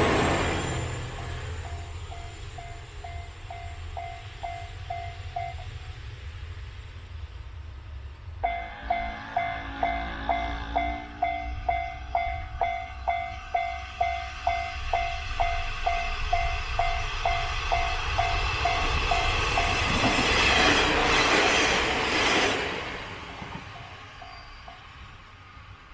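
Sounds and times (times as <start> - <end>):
level crossing warning bell: 0.0 - 5.9, 8.4 - 20.2.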